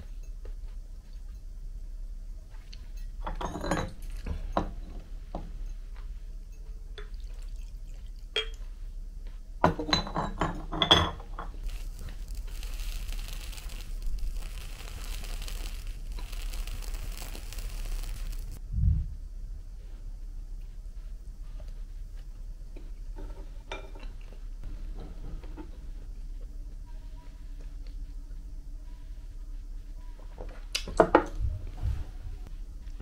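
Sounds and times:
squid crackling over a flame: 11.4s - 18.6s.

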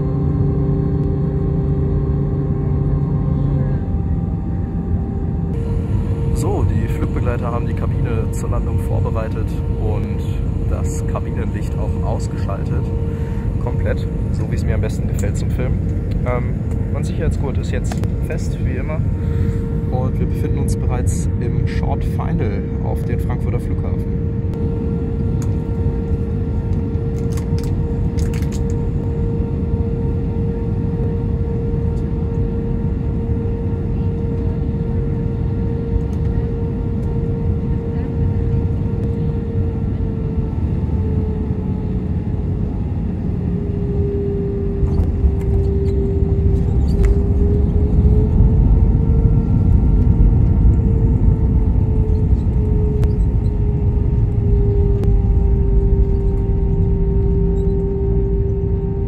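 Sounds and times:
jet engine and airflow noise: 0.0s - 59.0s
deep rumble of wheels on runway: 23.6s - 59.0s.

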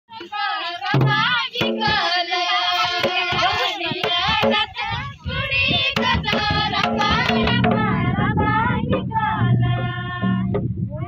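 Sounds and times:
girls and children singing: 0.1s - 11.0s
hand drums struck in rhythm: 0.9s - 2.2s, 2.9s - 4.8s, 5.7s - 8.0s.

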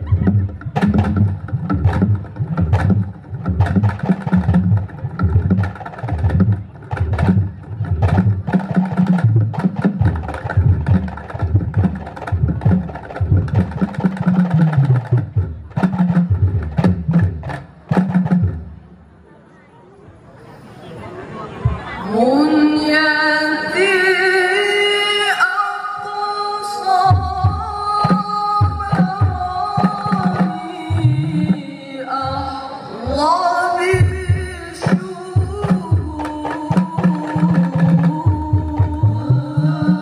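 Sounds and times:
frame drums beating fast rhythm: 0.0s - 18.8s, 33.9s - 40.0s.

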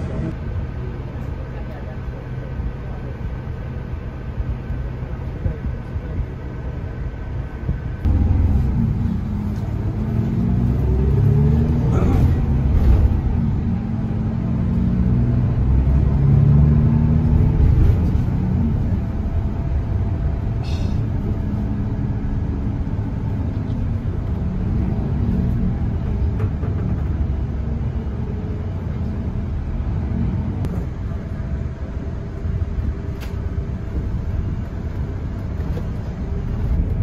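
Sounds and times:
bus engine and road rumble: 0.0s - 37.0s.

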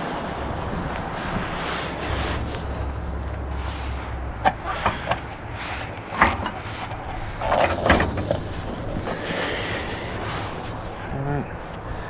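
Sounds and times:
metal knocks and clunks: 6.1s - 8.5s.

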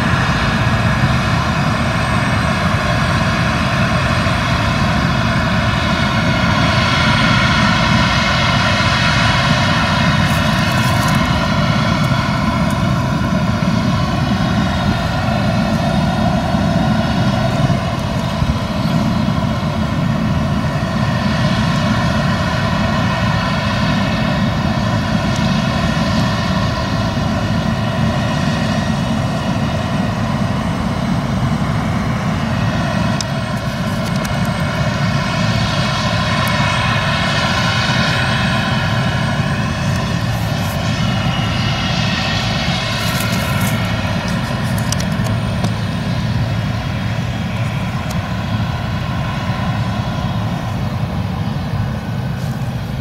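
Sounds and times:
combine harvester engine drone: 0.0s - 53.0s
high whine: 28.8s - 53.0s.

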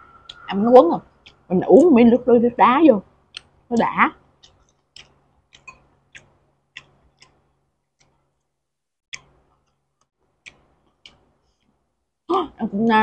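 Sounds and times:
faint eating clicks: 0.2s - 1.9s, 3.3s - 8.5s, 9.2s - 12.6s.

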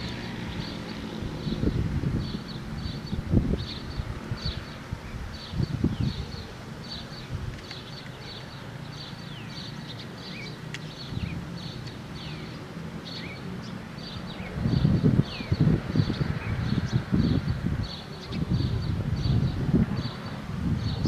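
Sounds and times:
small birds chirping: 0.0s - 21.0s
wind rumbling on microphone: 0.0s - 21.0s.

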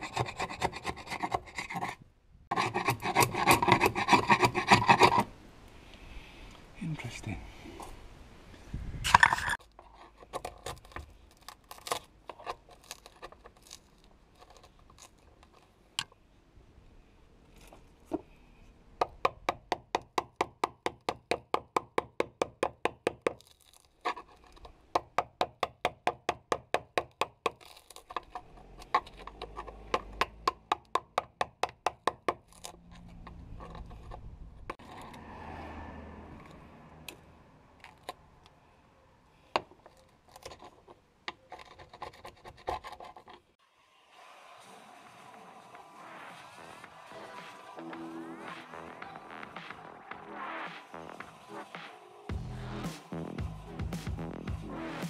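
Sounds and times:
chisel scraping rasp: 0.0s - 5.3s, 27.4s - 35.2s, 39.6s - 43.5s
chisel tapping on fibreglass: 19.0s - 23.5s, 24.9s - 28.3s, 29.3s - 32.4s.

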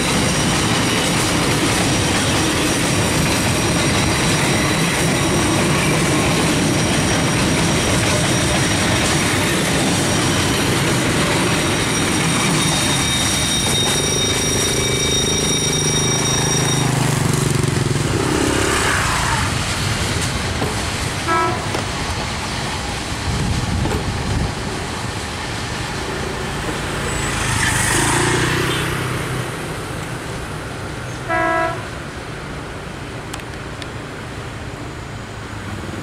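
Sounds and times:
train wheels on rails: 0.0s - 36.0s
train horn toots: 21.2s - 21.8s, 31.2s - 31.9s.

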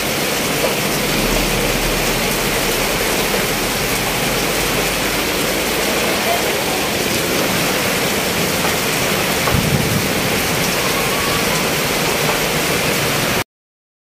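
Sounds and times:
heavy rain: 0.0s - 13.4s
low thump: 0.9s - 6.0s.

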